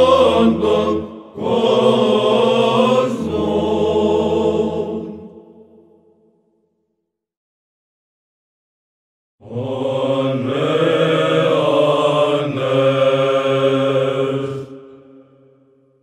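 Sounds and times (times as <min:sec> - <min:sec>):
choir chanting over drone: 0:00.0 - 0:06.1, 0:09.4 - 0:15.7.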